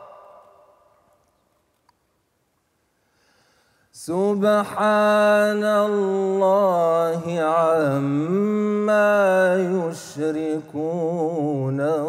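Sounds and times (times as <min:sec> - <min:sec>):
man chanting recitation: 0:04.0 - 0:12.0.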